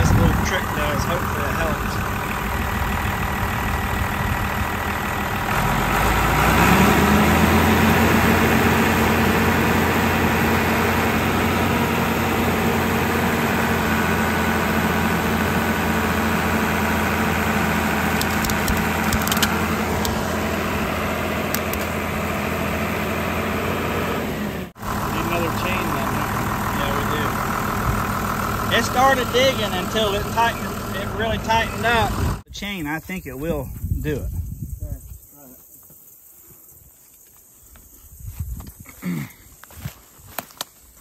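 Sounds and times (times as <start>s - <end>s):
tractor diesel engine revving: 0.0s - 32.5s.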